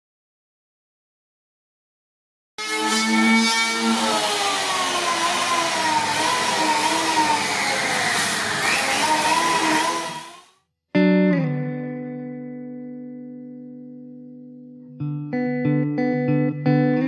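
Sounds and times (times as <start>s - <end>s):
electric planer whining: 2.6s - 10.5s
plucked guitar chord: 11.0s - 17.0s.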